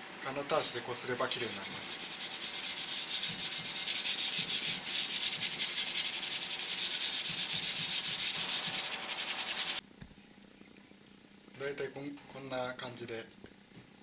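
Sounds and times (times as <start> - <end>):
steel wool scrubbing blade: 1.3 - 9.8.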